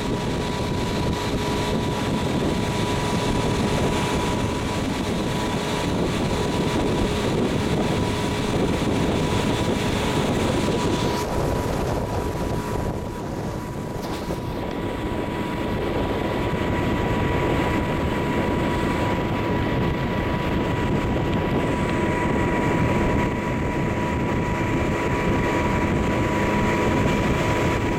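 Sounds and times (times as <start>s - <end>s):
motorboat engine running: 0.0s - 27.9s
rushing water and wind: 0.0s - 27.9s.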